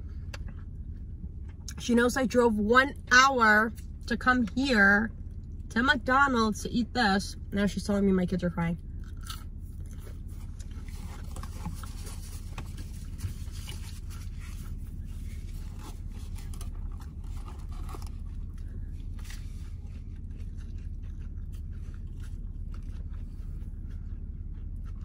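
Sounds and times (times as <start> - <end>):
steady low hum: 0.0 - 25.0
eating sounds: 9.0 - 25.0.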